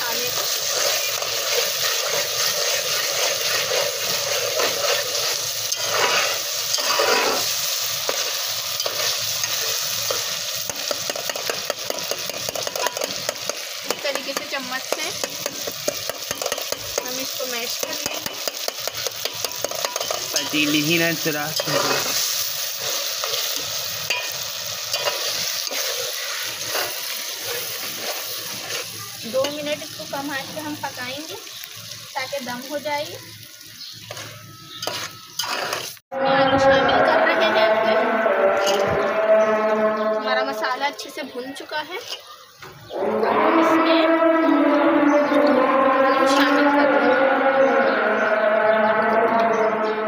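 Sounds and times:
metal spatula scraping pot: 0.0s - 29.9s, 34.0s - 41.0s, 42.0s - 42.4s
sauce sizzling in oil: 0.0s - 36.1s, 37.3s - 43.3s.

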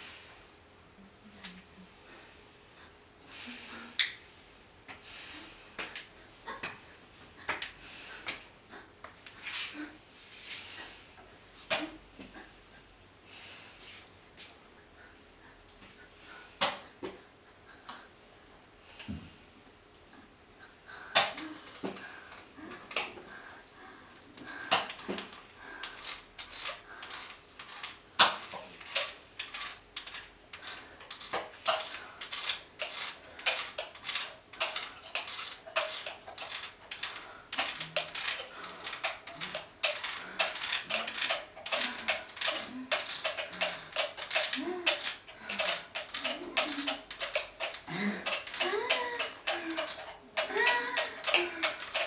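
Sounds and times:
small hard objects clicking: 24.6s - 52.0s.

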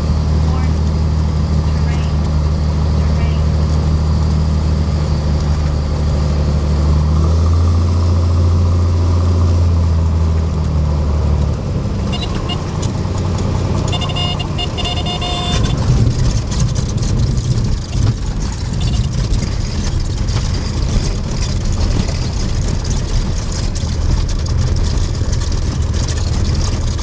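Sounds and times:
propeller aircraft engine: 0.0s - 27.0s
brief high tone: 13.9s - 15.9s.

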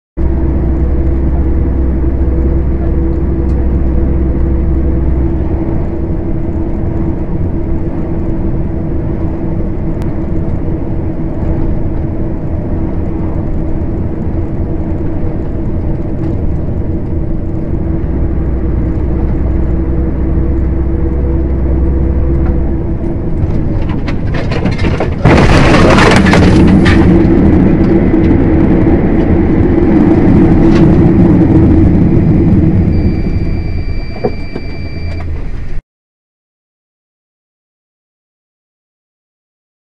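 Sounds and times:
hum tone: 0.2s - 35.8s
vehicle engine and road noise: 0.2s - 35.8s
harsh crackling burst: 25.2s - 27.5s.

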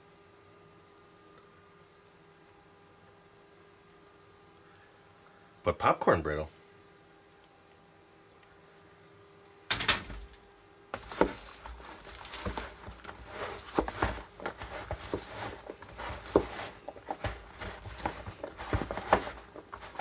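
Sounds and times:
popcorn rustling: 11.0s - 20.0s.

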